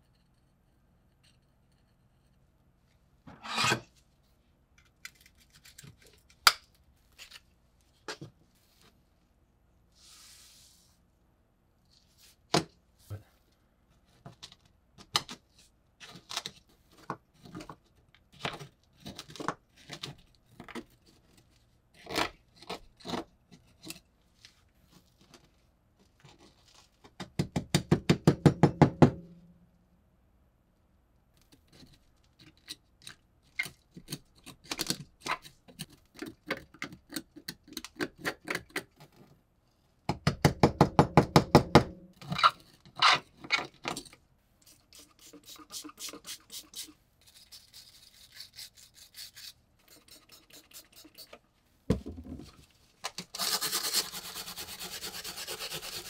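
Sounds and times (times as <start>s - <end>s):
steel pick scraping rust: 3.3s - 3.9s.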